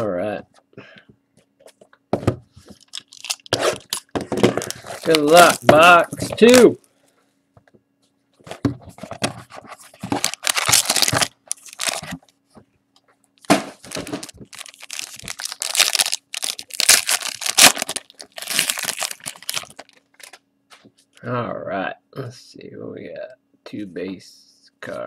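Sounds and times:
foil pack tearing and crinkling: 2.8 - 5.7, 10.1 - 12.2, 13.8 - 20.4
box being opened: 10.0 - 12.2.

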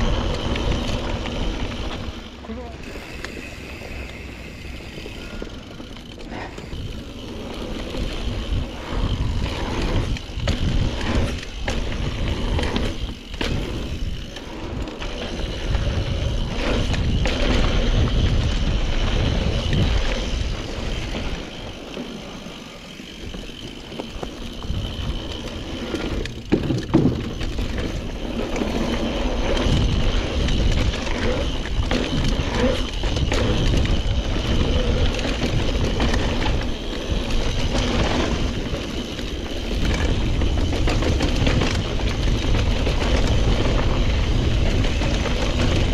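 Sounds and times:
bike rattling over bumps: 0.0 - 45.9
bike tyres on dirt: 0.0 - 45.9.

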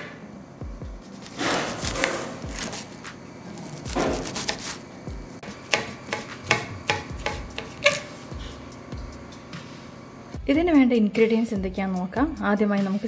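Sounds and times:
background music: 0.0 - 13.0
knife chopping on cutting board: 1.2 - 3.1, 3.8 - 4.8, 5.4 - 8.6.

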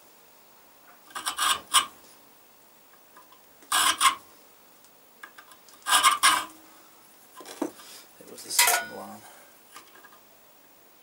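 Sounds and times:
hand file scraping steel: 3.7 - 4.2, 5.8 - 6.5.

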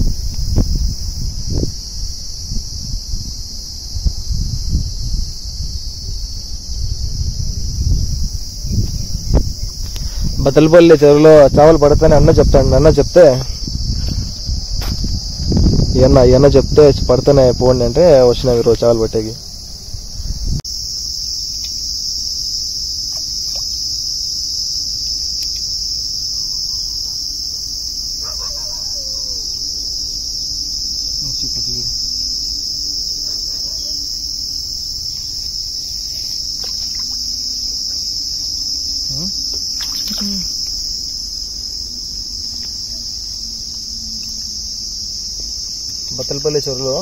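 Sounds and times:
high-pitched insect chorus: 0.0 - 47.0.

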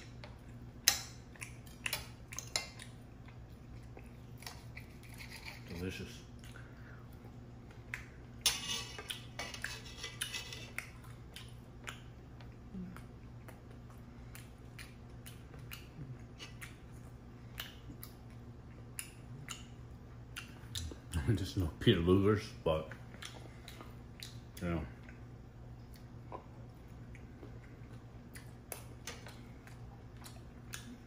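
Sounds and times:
knife and fork scraping plate: 8.4 - 10.8.

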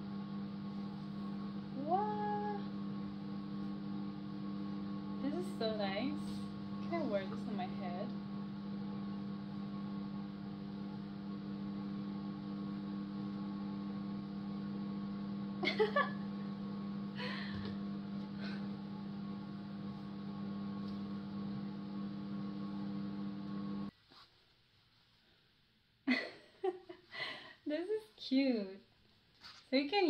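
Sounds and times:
soft short rustles: 29.1 - 29.8.

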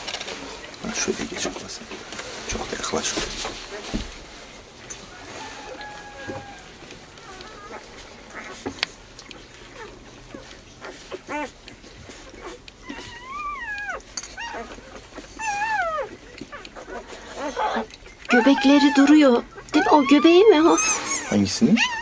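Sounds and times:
dog whimpering: 5.2 - 22.0.

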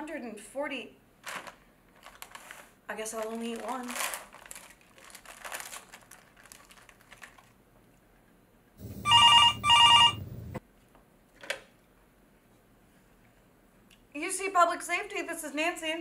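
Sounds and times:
candy wrapper crinkling: 1.2 - 7.6
desk telephone ringing: 8.8 - 10.6.

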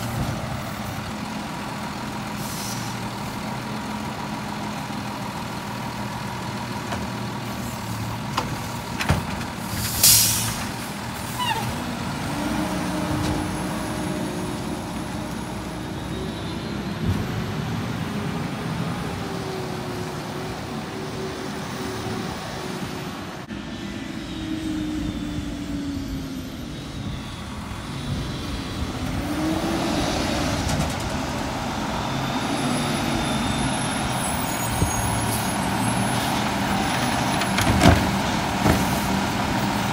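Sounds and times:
garbage truck diesel engine: 0.0 - 39.9
air brake hiss: 2.4 - 3.0, 9.7 - 10.7.

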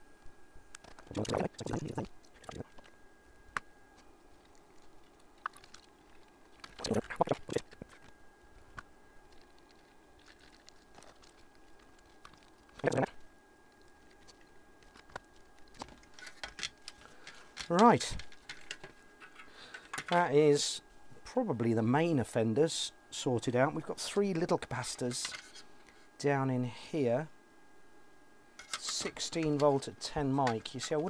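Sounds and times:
tools clicking and rustling: 14.2 - 20.3.

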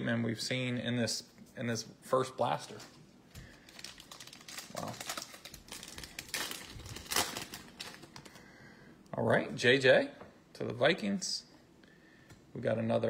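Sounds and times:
foil wrapper crinkling: 3.4 - 8.4.

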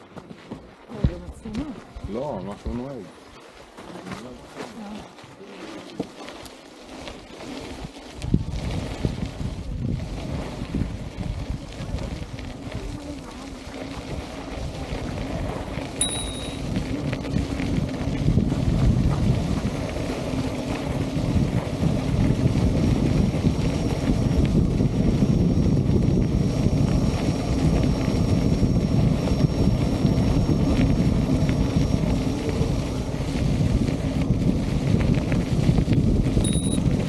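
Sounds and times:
electric unicycle on gravel: 0.0 - 37.0
wind buffeting microphone: 6.9 - 37.0
high electronic beep: 16.0 - 16.6, 36.4 - 36.9.

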